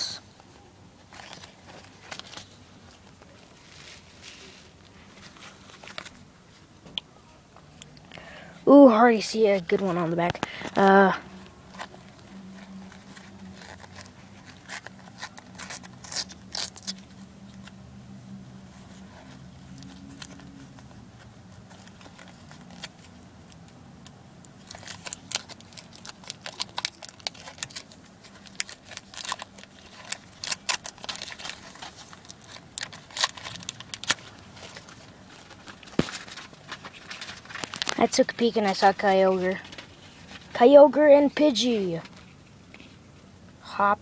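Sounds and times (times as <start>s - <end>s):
wrapper crinkling and tearing: 1.1s - 6.2s, 9.6s - 17.7s, 18.7s - 23.2s, 24.4s - 40.6s.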